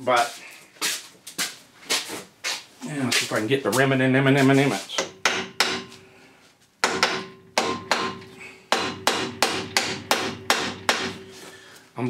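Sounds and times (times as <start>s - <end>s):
hammer striking metal: 5.0s - 6.0s, 6.8s - 11.3s.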